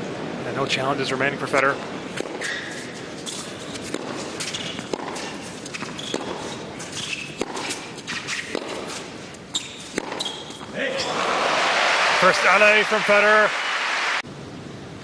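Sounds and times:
high squeaks: 0:02.4 - 0:11.2.

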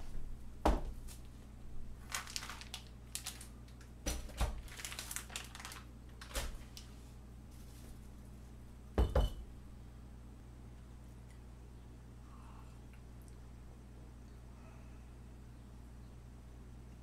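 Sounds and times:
plastic bag crinkling: 0:02.0 - 0:08.1.

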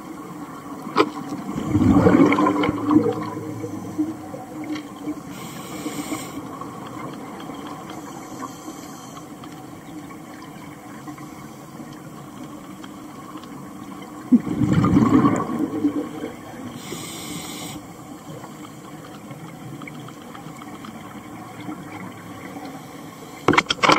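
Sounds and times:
steady underwater hiss: 0:00.0 - 0:23.9
exhaled bubbles rushing: 0:01.3 - 0:05.2, 0:14.3 - 0:16.7
inhaling hiss through regulator: 0:05.2 - 0:06.6, 0:07.9 - 0:09.3, 0:16.7 - 0:18.9.

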